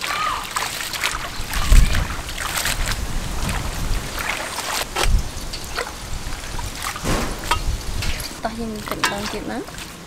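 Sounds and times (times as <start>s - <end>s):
rustling leaves: 0.0s - 10.0s
water sloshing and splashing in bowl: 0.0s - 10.0s
dull thump: 7.0s - 7.7s.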